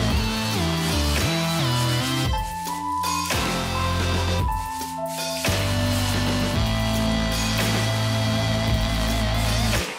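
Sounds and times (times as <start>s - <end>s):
electronic synth music: 0.0s - 9.9s
heavy bass line: 5.5s - 9.8s.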